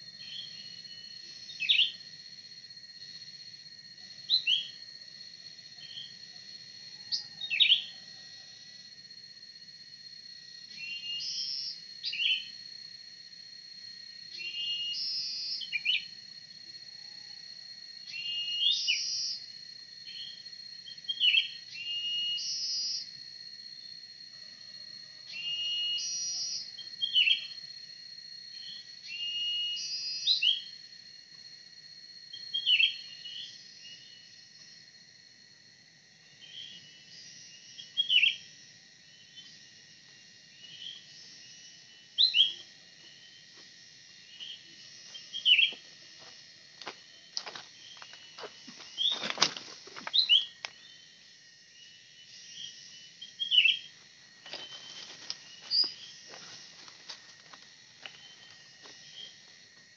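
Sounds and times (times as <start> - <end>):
high insect drone: 0.0 - 59.9
bird calls: 50.1 - 50.9.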